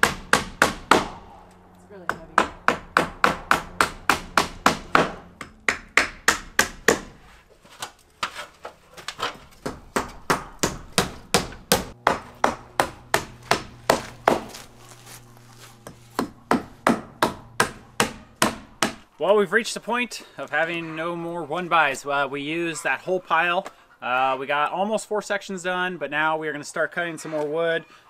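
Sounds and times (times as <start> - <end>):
hammer driving nails into wood: 2.4 - 7.2.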